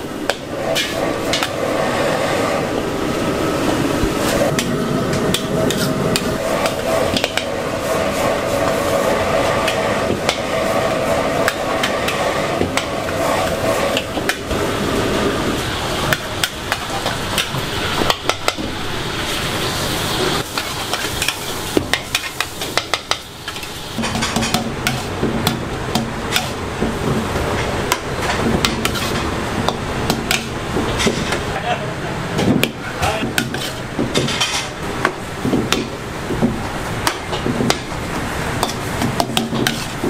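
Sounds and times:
frying sizzle: 14.0s - 31.0s.

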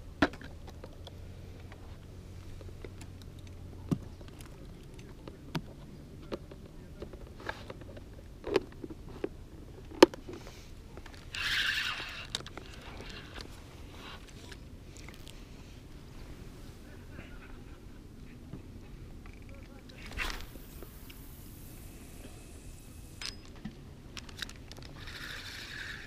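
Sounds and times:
fishing gear clicks and knocks: 0.2s - 1.8s, 2.6s - 15.4s, 19.2s - 21.3s, 23.2s - 26.0s
rustling hiss: 19.8s - 23.3s.

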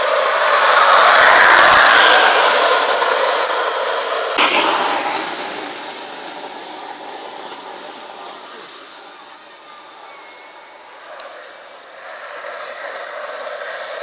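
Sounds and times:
cart wheels grinding on asphalt: 0.0s - 9.2s.

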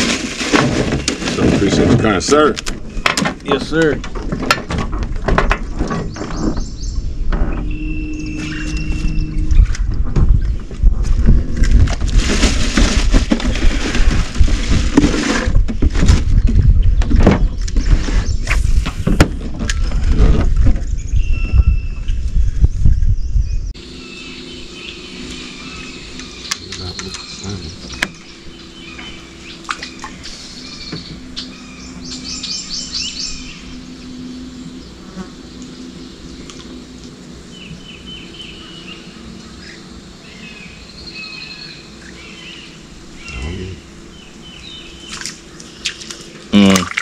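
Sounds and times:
birds chirping: 0.8s - 10.8s, 19.6s - 47.0s
insect buzz: 5.7s - 10.7s, 23.8s - 47.0s
loud low rumble: 6.7s - 12.3s.

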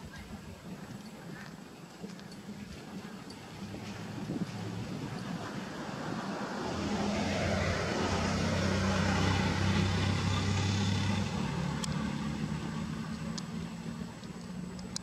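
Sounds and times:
vehicle passing: 3.1s - 14.8s.

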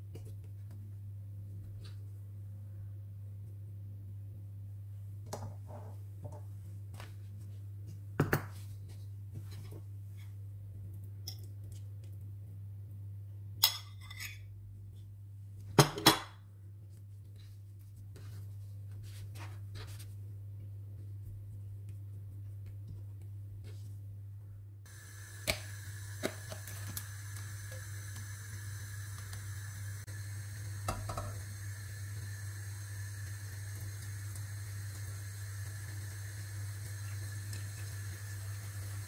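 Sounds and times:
steady low hum: 16.4s - 39.0s.

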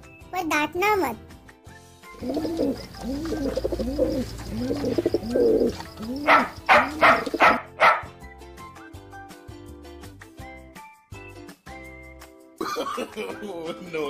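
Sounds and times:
pigeon cooing: 2.1s - 8.0s.

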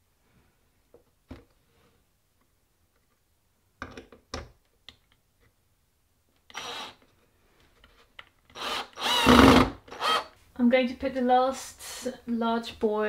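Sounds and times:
cordless drill running: 6.5s - 7.0s, 8.5s - 10.3s.

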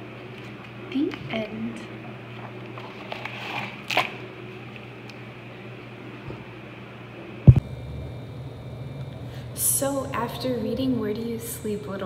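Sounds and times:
page rustling: 2.8s - 4.2s
loud low thump: 7.5s - 8.2s.

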